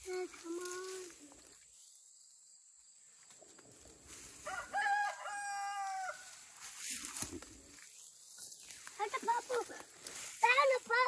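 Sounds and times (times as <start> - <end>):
rooster crowing: 4.4 - 6.4.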